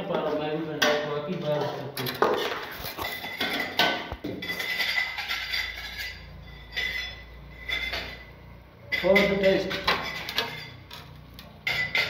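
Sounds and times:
ladle clinking against metal pot: 3.0s - 12.0s.

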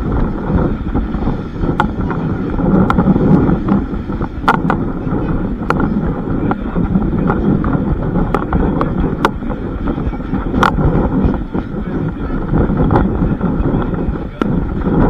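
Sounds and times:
train rumble: 0.0s - 15.0s
wind on microphone: 0.0s - 15.0s.

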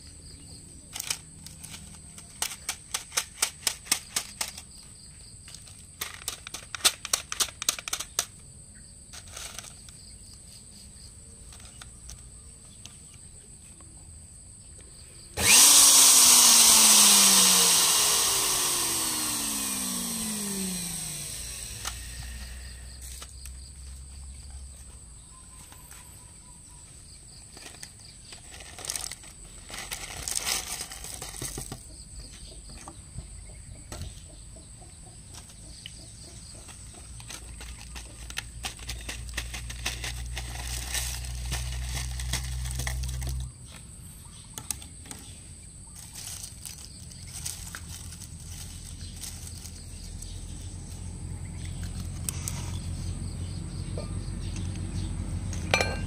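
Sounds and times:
electric grinder whining: 15.4s - 23.2s.

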